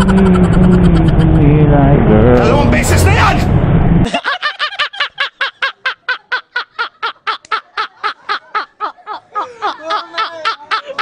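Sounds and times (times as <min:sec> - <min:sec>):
man laughing high-pitched: 0:00.0 - 0:01.5, 0:04.0 - 0:11.0
man laughing lower: 0:00.0 - 0:01.5, 0:04.0 - 0:11.0.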